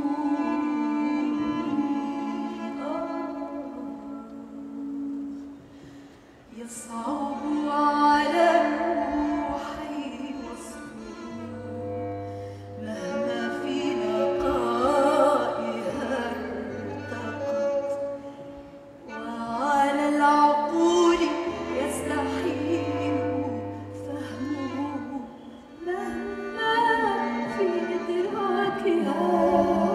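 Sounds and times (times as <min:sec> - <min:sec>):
bowed strings: 0:00.0 - 0:29.9
singing: 0:19.2 - 0:29.9.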